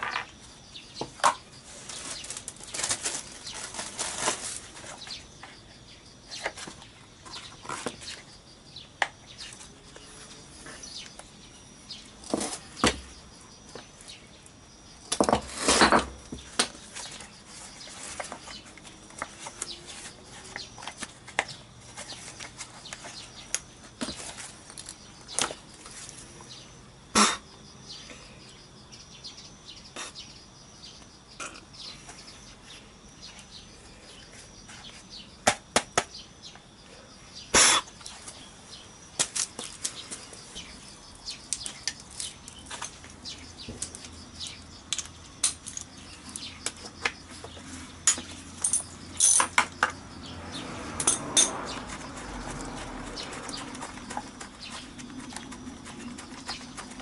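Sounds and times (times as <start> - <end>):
parts clicking and rattling: 41.5 - 50.0.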